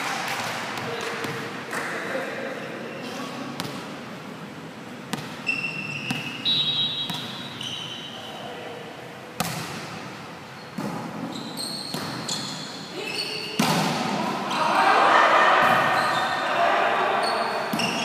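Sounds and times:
sneakers squeaking on court: 5.1s - 8.4s, 10.5s - 14.0s, 15.6s - 16.5s, 17.2s - 18.0s
players' voices: 12.9s - 18.0s.

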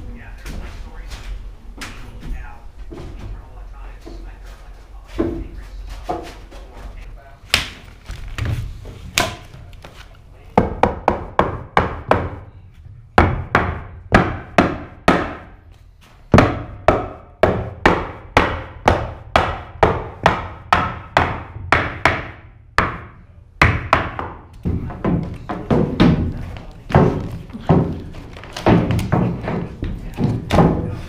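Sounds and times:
rubber mallet knocking boards: 13.2s - 15.6s, 16.3s - 31.0s.

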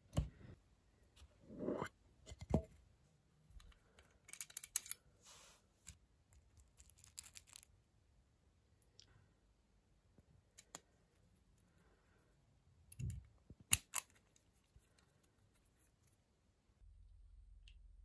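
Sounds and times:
clicks and scrapes loading pistol: 4.3s - 5.0s.

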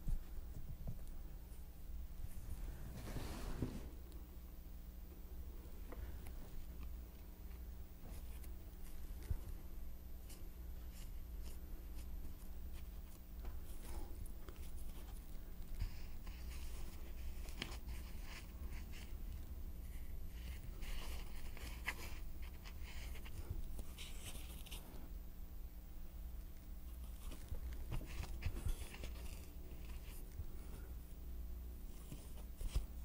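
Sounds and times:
steady low hum: 0.0s - 33.0s
foam sheets rustling and scraping: 2.4s - 4.0s, 20.4s - 25.0s.

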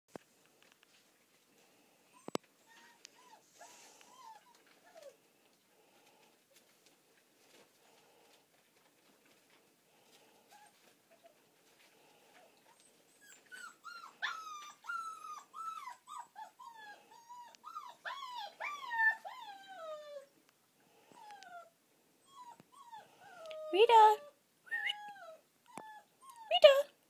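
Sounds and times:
puppy yelping and whining: 2.1s - 5.2s, 10.5s - 11.4s, 12.6s - 20.4s, 21.1s - 26.8s.

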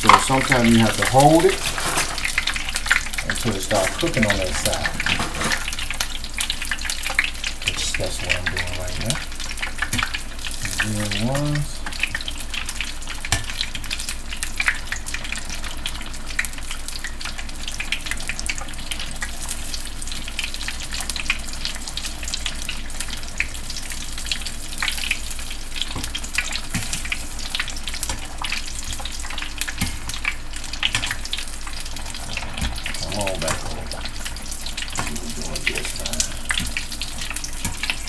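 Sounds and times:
food deep-frying in hot oil: 0.0s - 38.0s.

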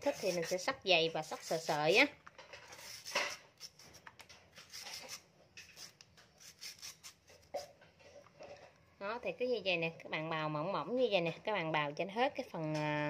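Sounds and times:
ginger scraping on hand slicer: 0.0s - 2.0s, 2.7s - 7.7s.

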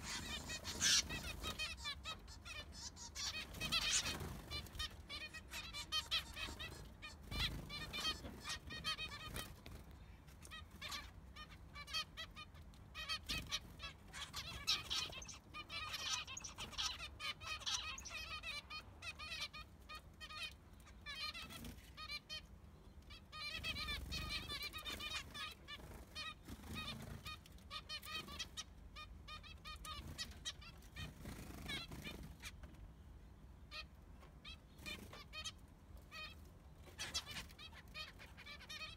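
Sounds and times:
finches calling: 0.0s - 9.6s, 10.5s - 22.4s.

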